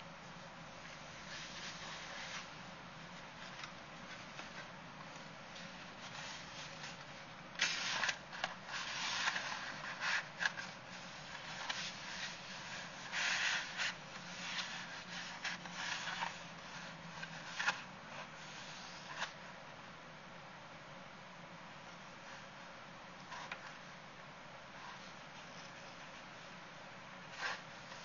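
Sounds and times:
rustling and scraping: 0:00.8 - 0:19.4, 0:23.2 - 0:23.9, 0:27.2 - 0:28.0.

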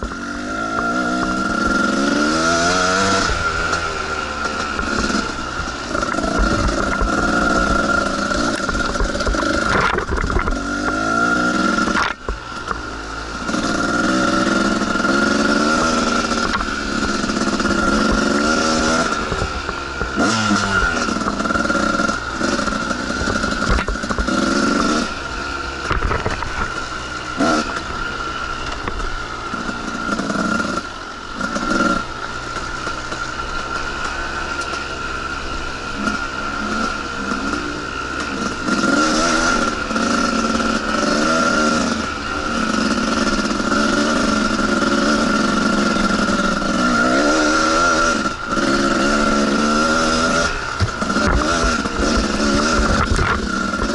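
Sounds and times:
dirt bike engine revving: 0:00.0 - 0:53.9
knocks and clatter: 0:08.3 - 0:10.6.

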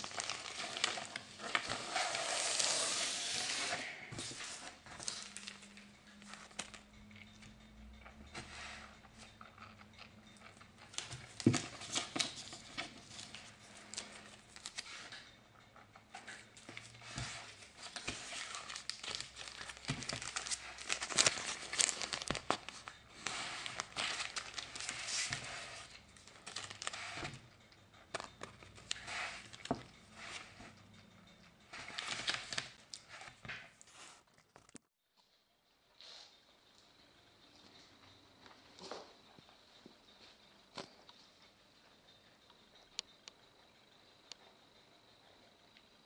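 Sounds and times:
plastic bags crinkling: 0:00.0 - 0:03.2, 0:17.6 - 0:27.4.

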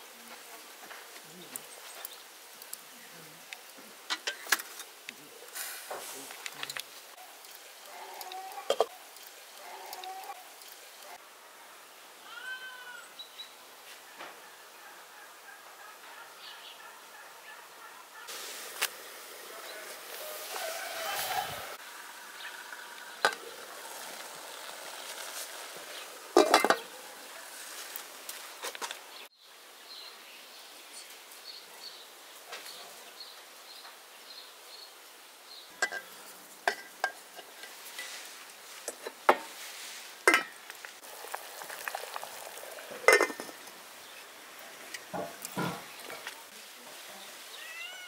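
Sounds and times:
faint sizzle: 0:00.0 - 0:14.8, 0:17.4 - 0:48.0
pots and utensils clinking: 0:04.1 - 0:05.0, 0:08.6 - 0:09.3, 0:22.7 - 0:28.4, 0:35.8 - 0:39.6, 0:40.2 - 0:43.8.

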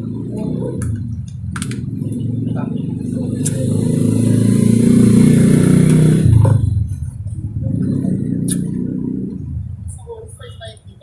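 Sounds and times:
motorcycle engine passing: 0:00.0 - 0:10.0.

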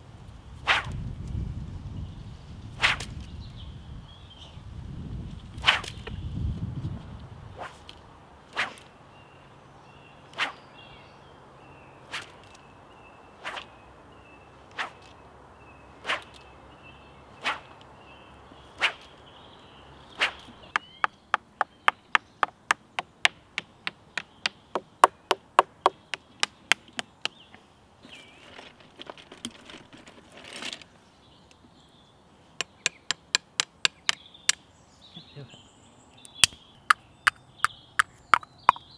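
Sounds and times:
whip cracking: 0:00.6 - 0:01.0, 0:02.8 - 0:03.2, 0:05.6 - 0:06.0, 0:08.5 - 0:08.9, 0:10.3 - 0:10.6, 0:12.1 - 0:12.6, 0:13.4 - 0:13.7, 0:14.7 - 0:15.1, 0:16.0 - 0:16.4, 0:17.4 - 0:17.8, 0:18.8 - 0:19.1, 0:20.2 - 0:20.5.

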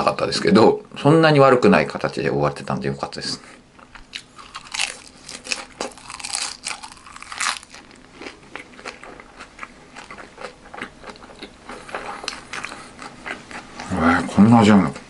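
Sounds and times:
crunchy chewing: 0:03.8 - 0:14.0.

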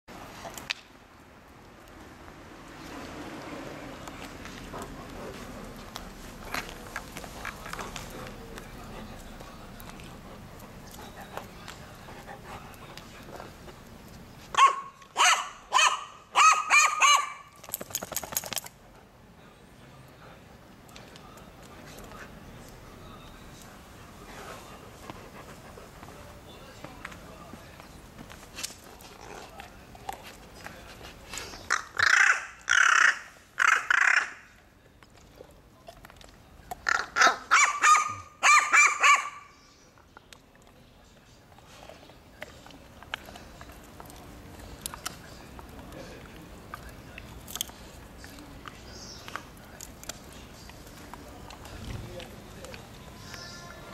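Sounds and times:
crow barking calls: 0:31.7 - 0:34.5.

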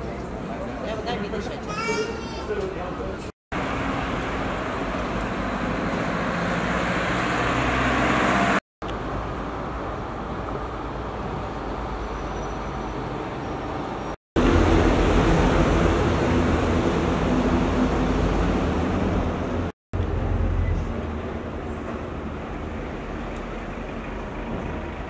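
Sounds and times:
road noise: 0:00.0 - 0:25.0
vehicle passing: 0:03.6 - 0:08.6.

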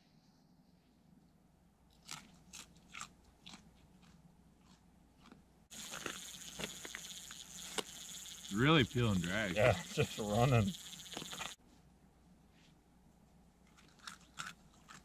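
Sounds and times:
steady hiss: 0:05.7 - 0:11.6
fishing reel drag clicking: 0:05.8 - 0:11.6.

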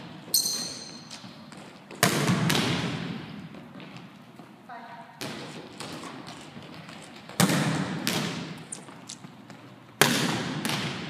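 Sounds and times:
volleyball slaps echoing: 0:00.4 - 0:04.0, 0:05.2 - 0:08.7, 0:09.4 - 0:11.0.

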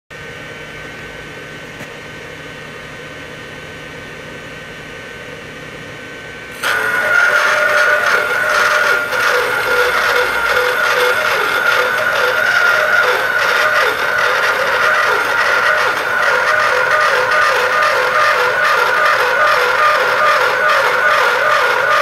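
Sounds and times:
cutter grinding into steel pipe: 0:06.6 - 0:22.0
machine motor whining: 0:06.6 - 0:22.0.

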